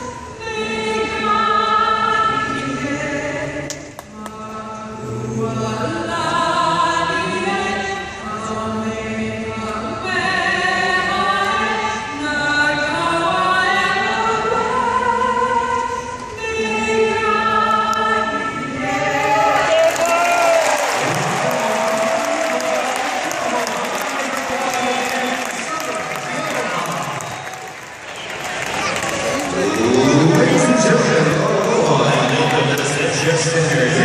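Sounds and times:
woman singing into amplified microphone: 0:00.0 - 0:19.8.

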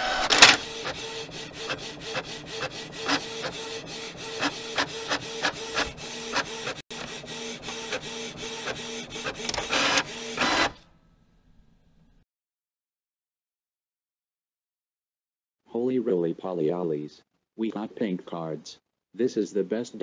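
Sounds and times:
printer clattering: 0:00.0 - 0:10.8
printer motor hum: 0:00.0 - 0:10.9.

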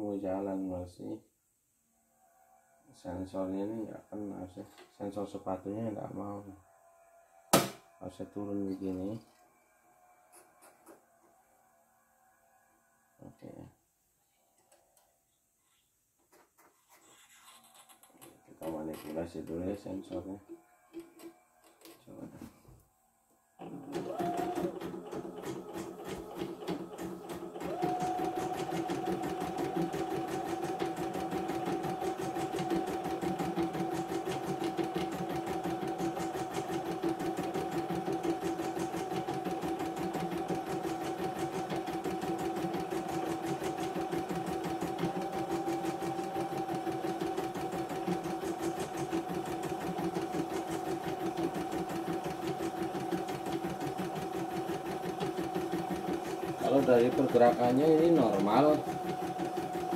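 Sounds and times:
embroidery machine stitching: 0:23.6 - 0:59.9.

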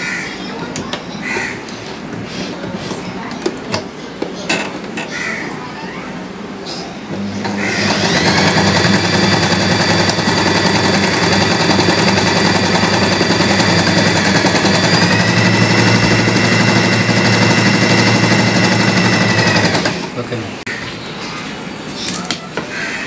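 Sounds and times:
sewing machine running: 0:07.4 - 0:20.4.

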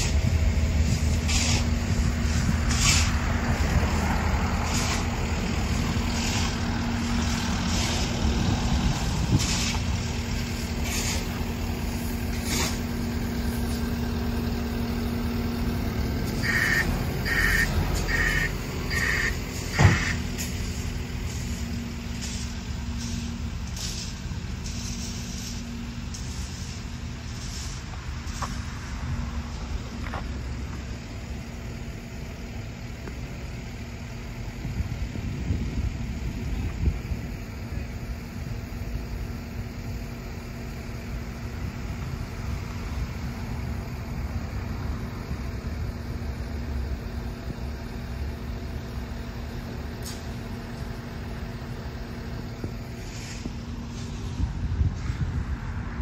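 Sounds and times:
hissy swishes: 0:00.0 - 0:14.0, 0:52.8 - 0:55.4
traffic rumble: 0:00.0 - 0:56.0.

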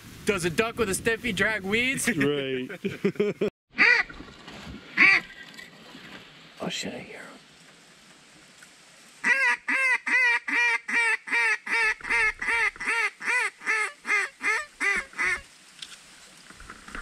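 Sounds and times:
duck call quacks: 0:03.8 - 0:04.1, 0:05.0 - 0:05.3, 0:09.2 - 0:15.5.

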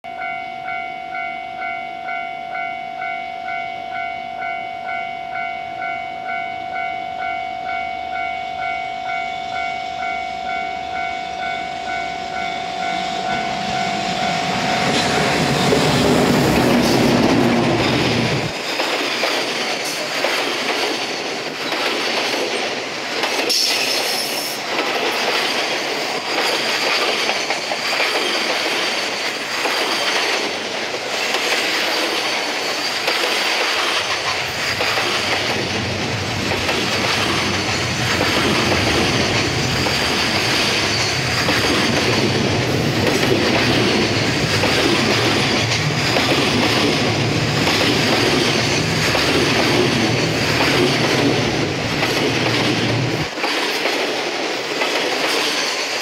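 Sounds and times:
electronic warning bell: 0:00.1 - 0:15.8
locomotive rumbling past: 0:06.8 - 0:23.9, 0:24.6 - 0:56.0
wagons clattering over rail joints: 0:14.8 - 0:56.0.

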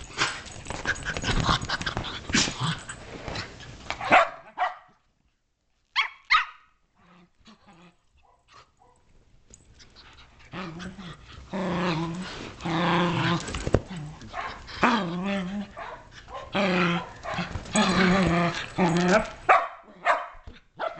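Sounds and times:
puppies scuffling: 0:00.0 - 0:04.1, 0:09.2 - 0:19.5
puppy sharp high barks: 0:04.0 - 0:04.9, 0:06.0 - 0:06.7, 0:19.5 - 0:20.9
puppies growling: 0:09.9 - 0:19.5.

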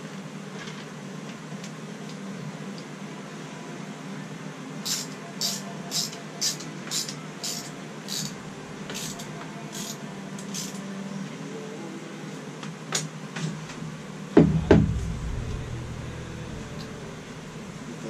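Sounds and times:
heavy knocks: 0:14.4 - 0:18.0.

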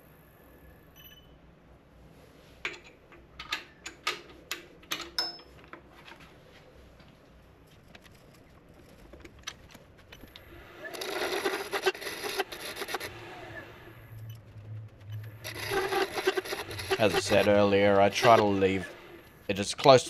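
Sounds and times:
lathe low hum: 0:07.0 - 0:20.0
lathe tool scraping wood: 0:10.4 - 0:13.9, 0:15.2 - 0:19.3.

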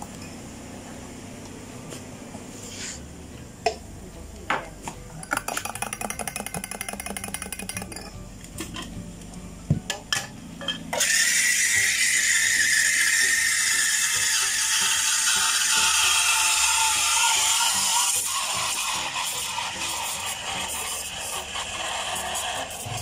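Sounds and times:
cups and utensils knocking: 0:04.5 - 0:08.9
spoon stirring in a cup: 0:05.2 - 0:08.2.

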